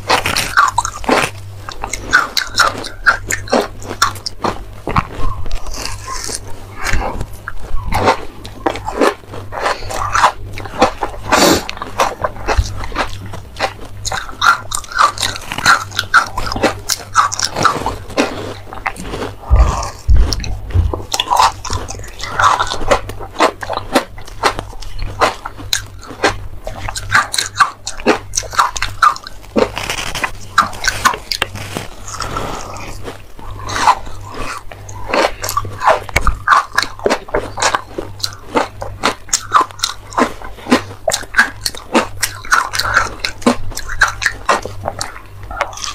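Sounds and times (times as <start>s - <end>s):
crunching ice being chewed: 0.0s - 45.9s.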